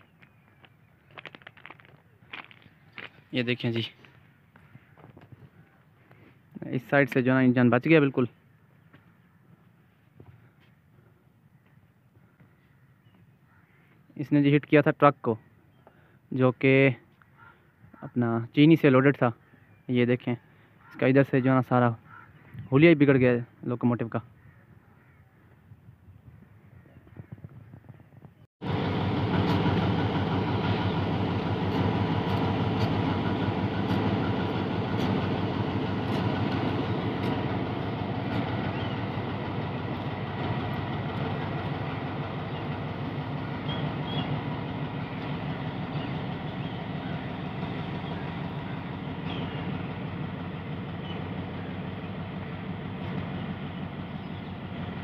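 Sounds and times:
locomotive engine throbbing: 0:28.6 - 0:55.0.

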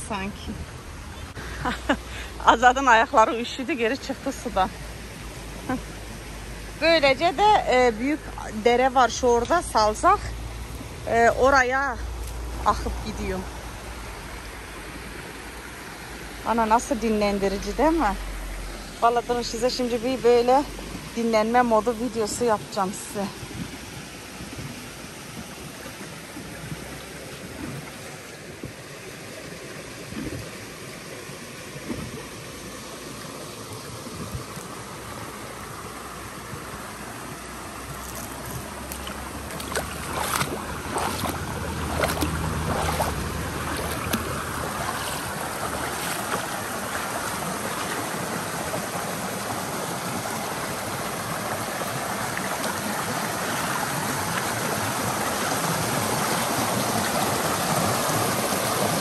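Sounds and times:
stream splashing over rocks: 0:00.0 - 0:59.0.

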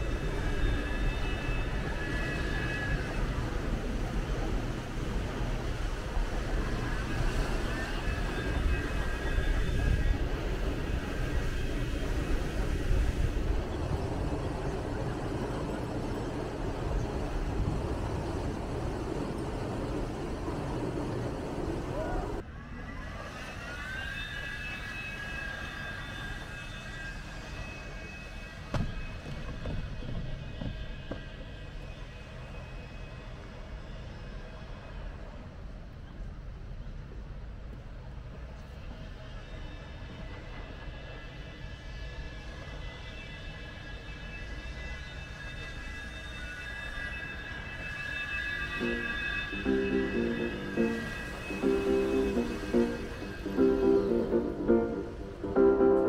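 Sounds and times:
faint high squealing: 0:00.0 - 0:04.4, 0:05.9 - 0:19.3, 0:19.9 - 0:35.0, 0:39.1 - 0:56.0
high-pitched vehicle whine: 0:43.7 - 0:56.0.

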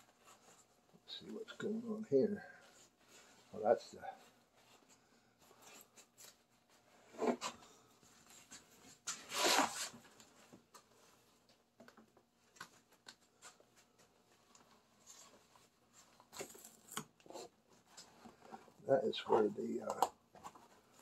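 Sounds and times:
vinyl scraping rustle: 0:02.6 - 0:10.4.

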